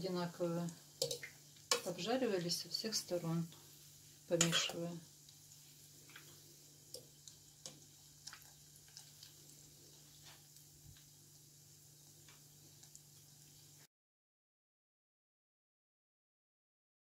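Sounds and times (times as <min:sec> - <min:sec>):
hot oil crackling and popping: 0:00.0 - 0:13.9
low steady hum: 0:00.0 - 0:13.9.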